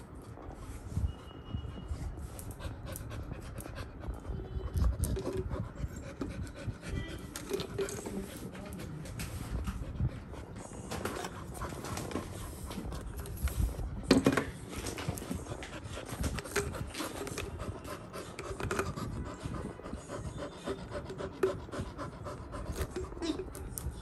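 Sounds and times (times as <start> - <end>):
claws on tile floor: 0.0 - 24.0
puppy panting: 2.1 - 24.0.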